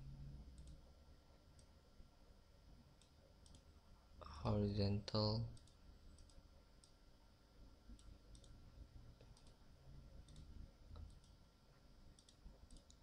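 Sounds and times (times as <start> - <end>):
low background hum: 0.0 - 13.0
computer mouse clicks: 0.5 - 0.8, 3.0 - 3.7, 5.5 - 7.0, 7.9 - 8.6, 9.2 - 9.6, 10.2 - 11.4, 12.1 - 13.0.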